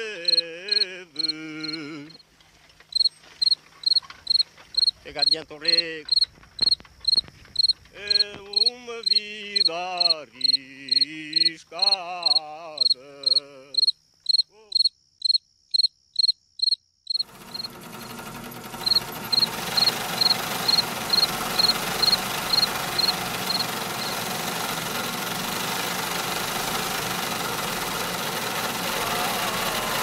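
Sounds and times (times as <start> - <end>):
cricket chirping: 0.2 - 2.2, 2.9 - 17.7, 18.9 - 24.1.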